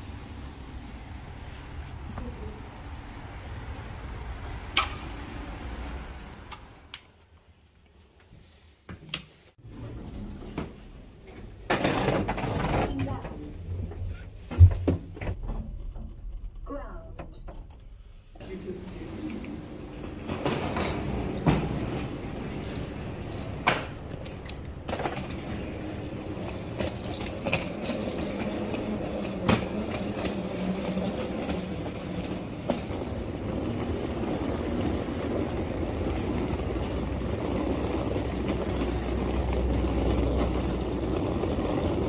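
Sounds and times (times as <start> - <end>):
train engine hum: 0.0 - 8.4, 13.1 - 42.0
low rumble: 13.5 - 19.1.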